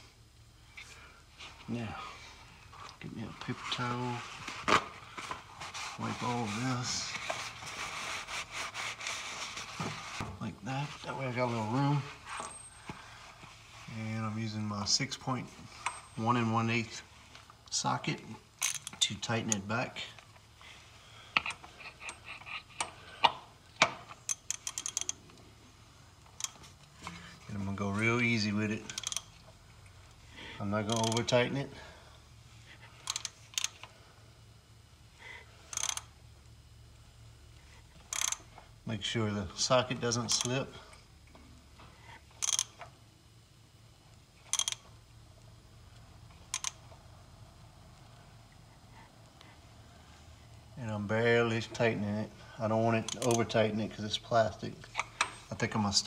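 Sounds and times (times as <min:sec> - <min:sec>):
ratchet clicking: 0:18.6 - 0:19.0, 0:24.2 - 0:25.2, 0:26.4 - 0:26.6, 0:28.8 - 0:29.4, 0:30.9 - 0:31.3, 0:33.0 - 0:33.9, 0:35.7 - 0:36.1, 0:38.1 - 0:38.5, 0:42.3 - 0:42.9, 0:44.4 - 0:44.8, 0:46.5 - 0:46.8, 0:53.1 - 0:53.4.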